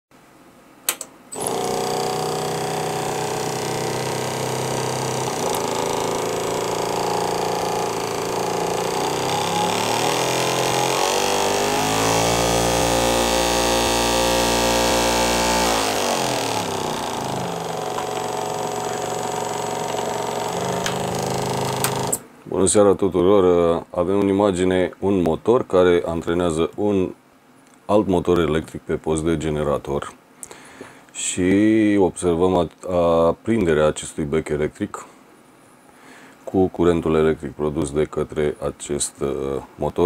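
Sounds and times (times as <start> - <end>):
sharp clicks: 0.9 - 1.7, 5.2 - 11.2, 15.7 - 22.2
electric motor whine: 1.4 - 22.2.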